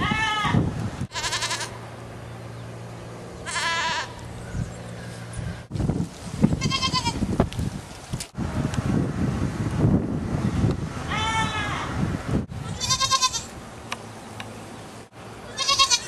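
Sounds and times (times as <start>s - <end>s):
goats bleating: 0.0s - 1.8s, 3.4s - 4.2s, 6.6s - 7.2s, 12.6s - 13.5s, 15.4s - 16.0s.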